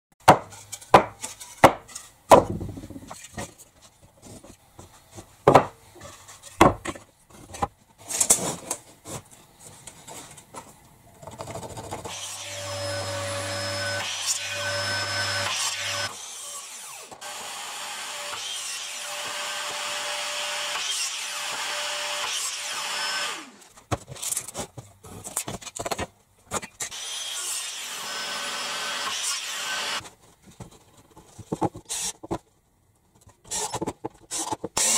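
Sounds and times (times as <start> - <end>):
wooden boards knocking: 0.2 - 3.1, 5.4 - 5.8
mitre saw cutting wood: 12.1 - 23.7, 26.9 - 30.0, 34.4 - 34.9.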